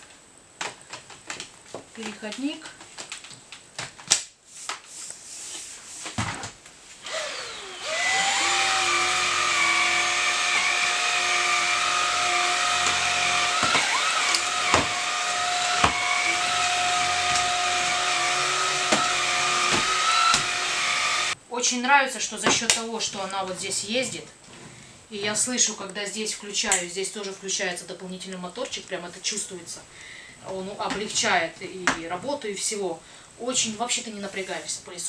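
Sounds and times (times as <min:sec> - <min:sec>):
stick vacuum whining: 0:07.0 - 0:21.4.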